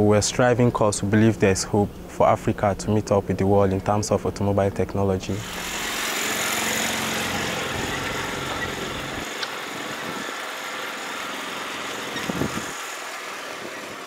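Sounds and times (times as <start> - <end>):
car engine and exhaust: 5.4 - 14.0.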